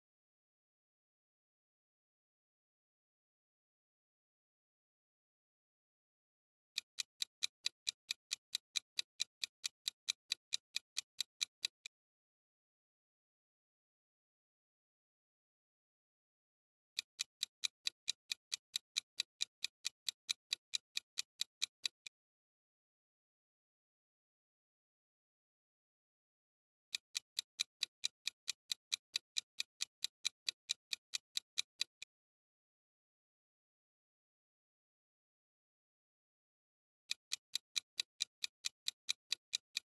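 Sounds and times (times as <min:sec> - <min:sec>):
clock ticking: 0:06.8 - 0:11.9, 0:17.0 - 0:22.1, 0:26.9 - 0:32.1, 0:37.1 - 0:39.9.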